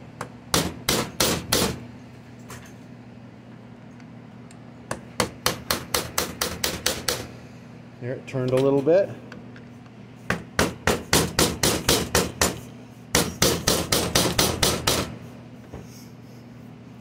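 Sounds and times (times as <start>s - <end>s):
hammer tapping on metal: 4.9s - 7.3s.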